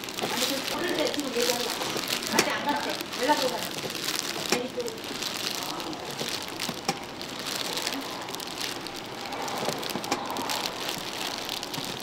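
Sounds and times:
gloved hands squishing fish: 0.0 - 12.0.

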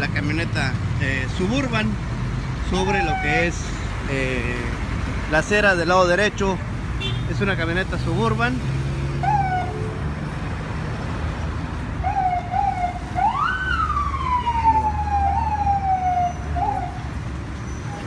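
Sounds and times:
low traffic rumble: 0.0 - 18.0
emergency vehicle siren: 2.8 - 3.7, 9.2 - 10.0, 12.0 - 17.2.

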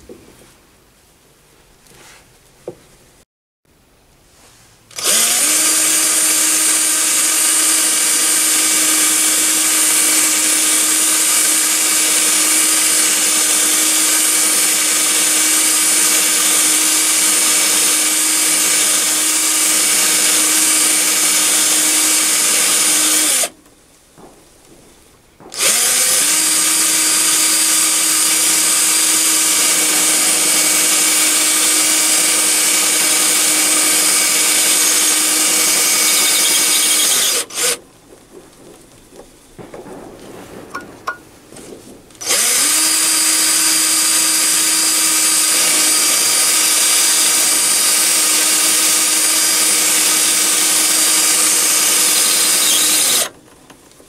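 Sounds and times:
drill motor whining: 4.9 - 23.6, 25.5 - 37.8, 42.2 - 53.4.

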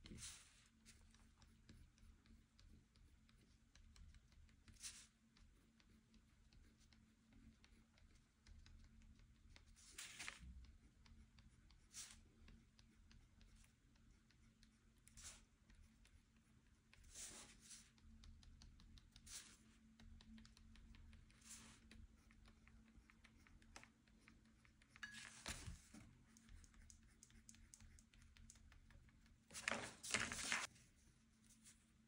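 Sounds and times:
pen scratching on paper: 0.0 - 29.5.

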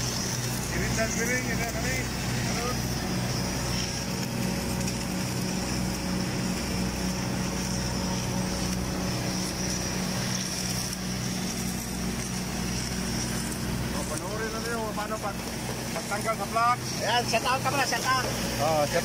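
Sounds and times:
welding machinery hum: 0.0 - 19.0.

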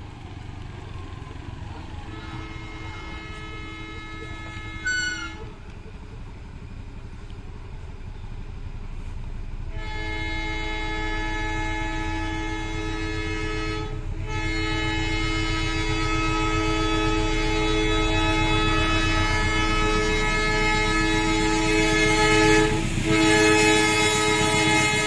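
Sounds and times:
locomotive rumble: 0.0 - 25.0
train horn blast: 1.6 - 5.6, 9.7 - 25.0.

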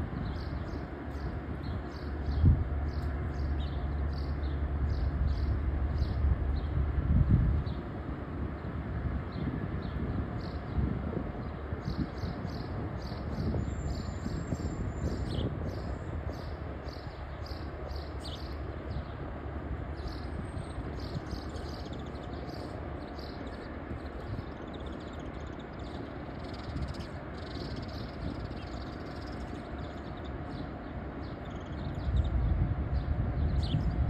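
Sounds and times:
steady low rumble: 0.0 - 34.0
small birds chirping: 0.1 - 7.0, 8.5 - 34.0.

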